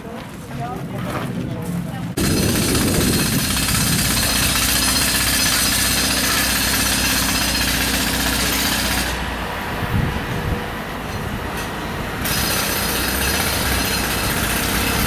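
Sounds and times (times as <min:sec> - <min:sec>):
motor running: 0:02.2 - 0:06.8.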